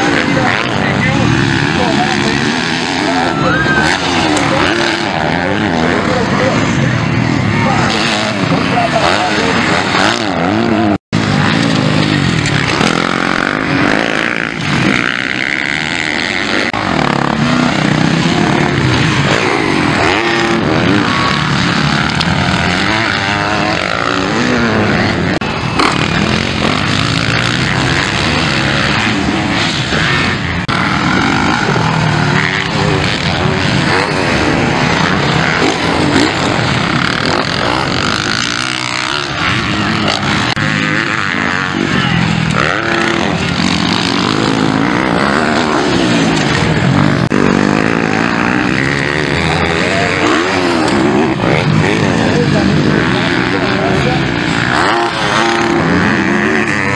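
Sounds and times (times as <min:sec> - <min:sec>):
motocross bike engines revving: 0:00.0 - 0:56.9.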